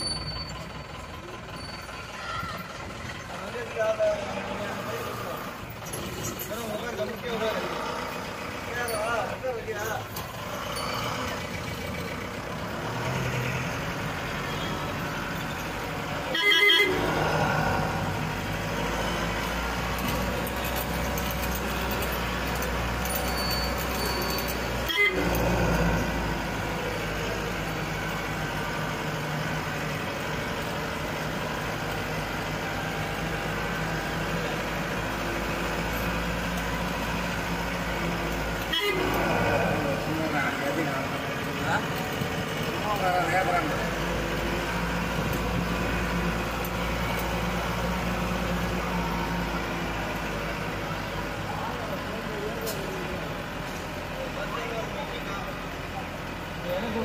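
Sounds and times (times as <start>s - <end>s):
vehicle engine running: 0.0s - 57.0s
vehicle horn: 16.3s - 17.1s, 24.8s - 25.4s, 38.6s - 39.2s.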